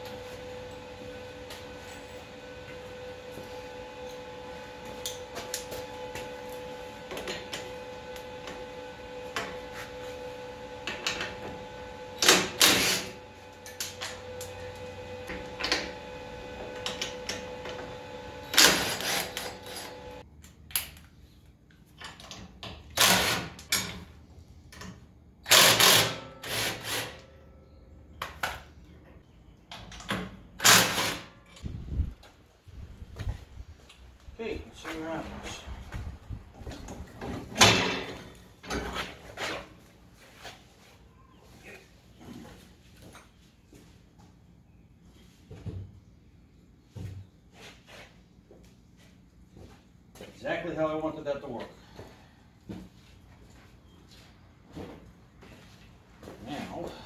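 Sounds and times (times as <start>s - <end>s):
background hum with a tone: 0.0s - 57.0s
impact wrench bursts: 25.4s - 27.2s.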